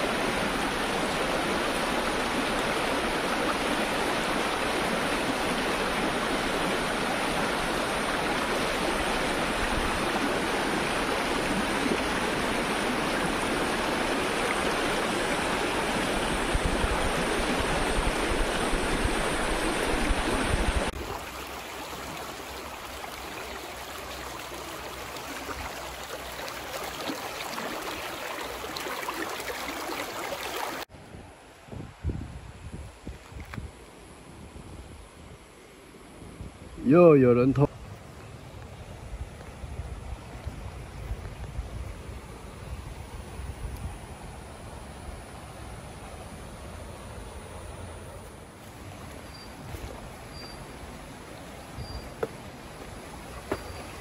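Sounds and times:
creek babbling over rocks: 0:00.0 - 0:30.9, 0:37.1 - 0:54.0
river rapid rushing: 0:00.0 - 0:30.9.

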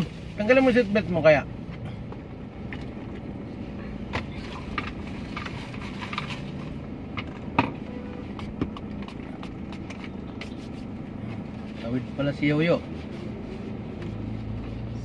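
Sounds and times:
car cabin hum: 0:00.0 - 0:15.0.

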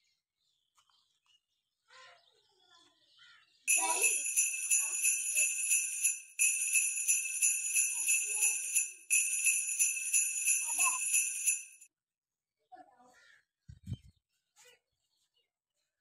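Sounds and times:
jingle bells shaken: 0:03.7 - 0:11.9.

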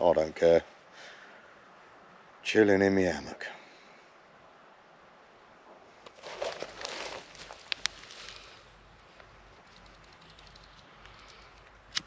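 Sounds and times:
footsteps crunching dry leaves: 0:06.1 - 0:08.6.

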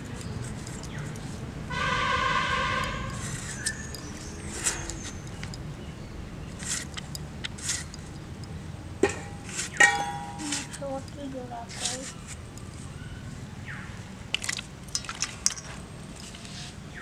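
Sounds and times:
figs scraped against blade: 0:02.6 - 0:05.5, 0:06.6 - 0:08.0, 0:11.7 - 0:12.7
steady pitched tone: 0:09.0 - 0:10.8.

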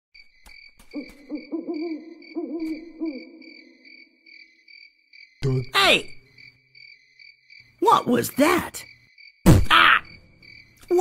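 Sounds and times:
crickets chirping: 0:00.2 - 0:11.0
owl hooting: 0:00.9 - 0:04.1.

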